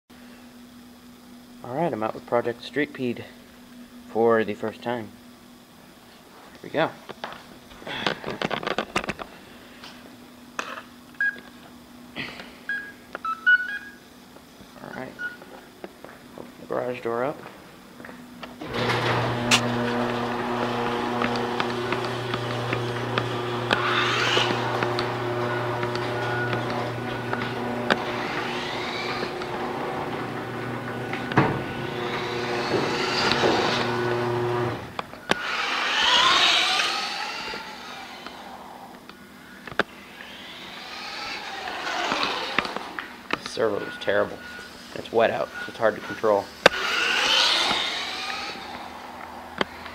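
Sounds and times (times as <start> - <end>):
steady low hum: 0.1 - 49.9
short electronic beeps: 12.7 - 14.0, 43.8 - 44.8, 45.5 - 45.9
electric motor whining: 18.6 - 49.9.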